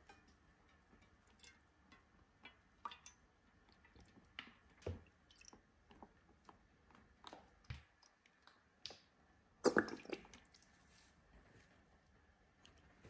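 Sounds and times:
metal and glass clicks and squishes: 0:00.0 - 0:04.8.

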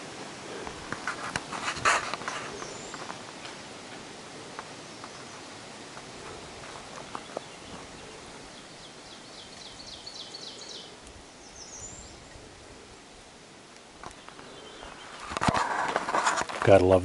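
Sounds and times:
leaves rustling: 0:00.0 - 0:17.0
songbird singing: 0:00.0 - 0:17.0
faint clicks: 0:11.0 - 0:11.2.

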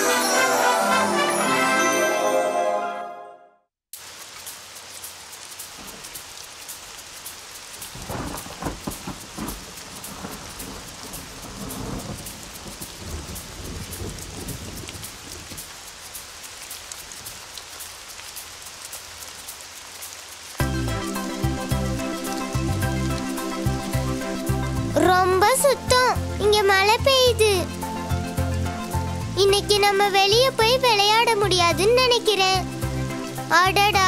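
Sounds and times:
heavy rain: 0:04.0 - 0:34.0
rolling thunder: 0:07.9 - 0:15.6.

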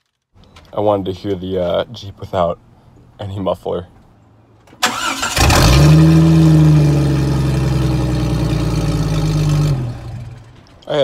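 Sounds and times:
unmuffled car engine starting and idling: 0:04.8 - 0:10.8.

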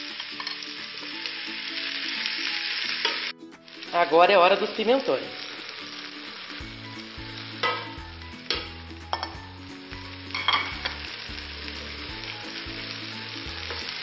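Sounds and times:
meat sizzling in oil: 0:00.0 - 0:14.0.

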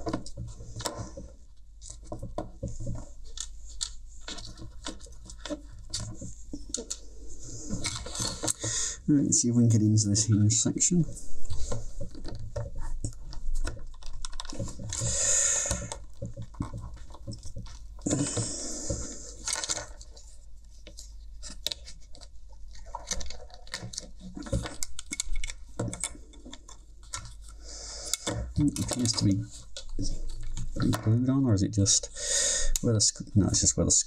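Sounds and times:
small plastic clicks and rattles: 0:00.0 - 0:07.1, 0:11.5 - 0:31.2
screwdriver scraping plastic: 0:11.4 - 0:31.1.

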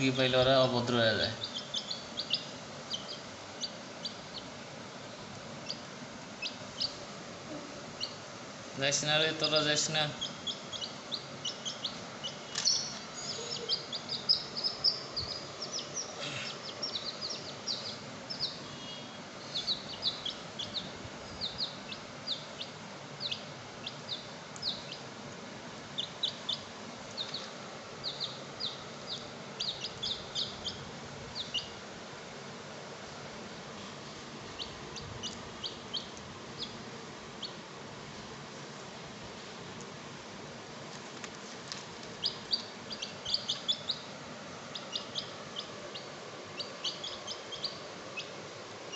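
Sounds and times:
baby chicks peeping: 0:00.0 - 0:32.0, 0:33.5 - 0:37.7, 0:41.2 - 0:48.9.

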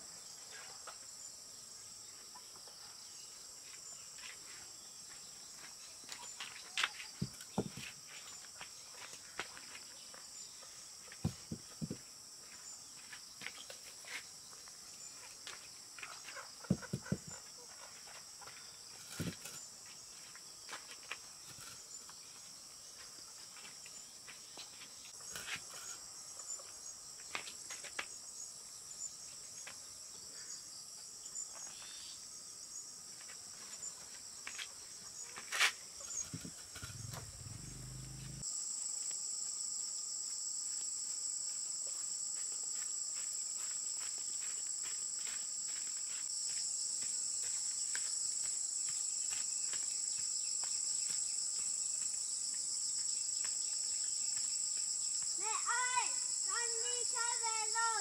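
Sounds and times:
insects droning: 0:00.0 - 0:58.0.

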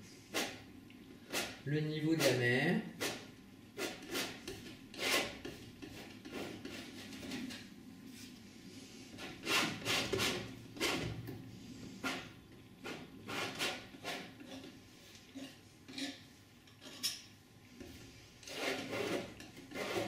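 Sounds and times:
painting knife scraping on canvas: 0:01.3 - 0:01.6, 0:03.8 - 0:07.6, 0:09.1 - 0:11.2, 0:12.0 - 0:16.3, 0:18.4 - 0:20.0.

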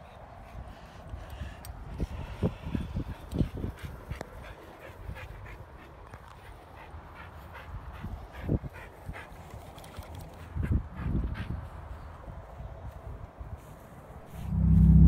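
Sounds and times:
loud low thumps: 0:14.2 - 0:15.0.

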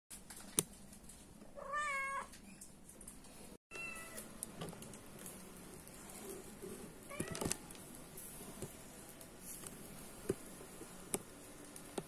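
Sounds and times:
cat meowing: 0:01.6 - 0:02.3.

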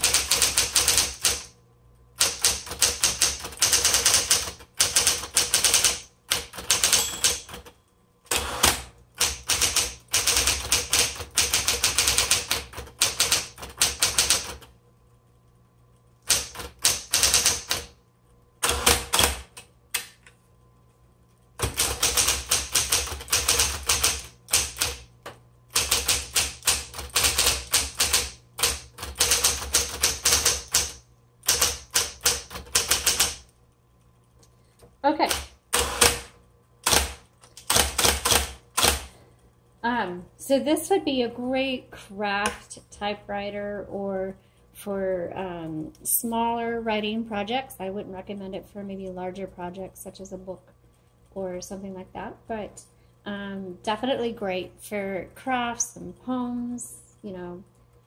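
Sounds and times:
electric typewriter key strikes: 0:00.0 - 0:01.5, 0:02.2 - 0:14.7, 0:16.2 - 0:18.0, 0:18.6 - 0:19.6, 0:21.6 - 0:25.1, 0:25.7 - 0:33.5, 0:35.2 - 0:39.1
faint steady hum: 0:00.0 - 0:58.0.

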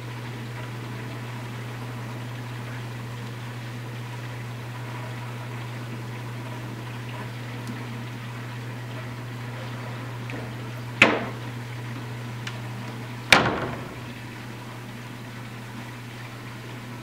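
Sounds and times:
aquarium pump hum and water hiss: 0:00.0 - 0:17.0.

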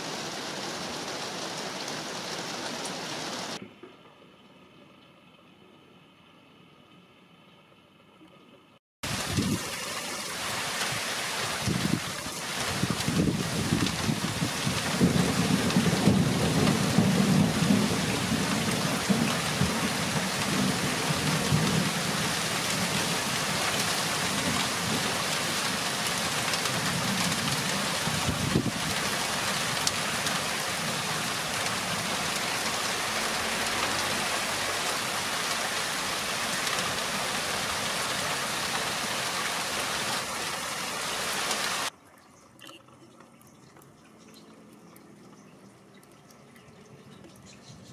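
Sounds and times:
rain on roofs and foliage: 0:00.0 - 0:05.6, 0:09.0 - 0:42.0
low rumble of thunder: 0:12.7 - 0:23.2.

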